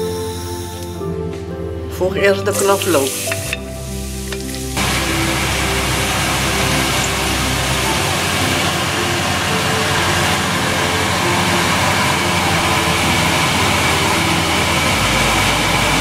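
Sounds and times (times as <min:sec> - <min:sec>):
garlic sizzling in oil: 0:02.5 - 0:15.0.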